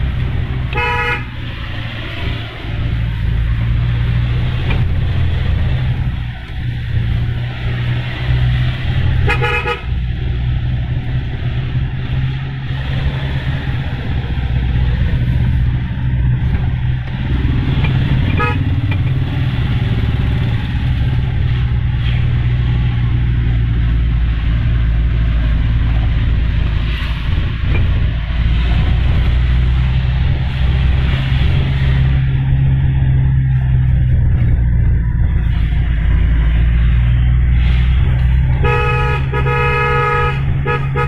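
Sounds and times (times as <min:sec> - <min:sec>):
car engine pulling uphill: 0:00.0 - 0:41.0
car horn toots: 0:00.7 - 0:01.4, 0:09.2 - 0:10.0, 0:18.2 - 0:18.8, 0:38.5 - 0:41.0.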